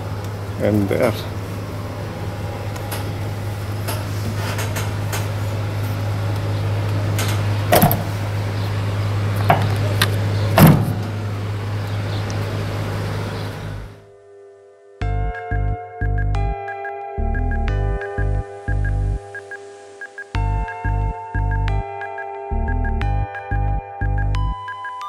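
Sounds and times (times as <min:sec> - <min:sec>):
steady low hum: 0:00.0 - 0:14.2, 0:17.2 - 0:21.9
truck door knocks and clunks: 0:07.7 - 0:08.2, 0:09.4 - 0:11.2.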